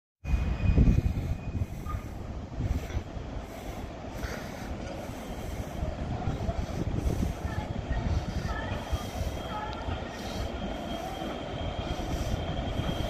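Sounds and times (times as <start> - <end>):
distant train rumble: 0.2 - 13.0
faint thin squeal: 0.3 - 2.2.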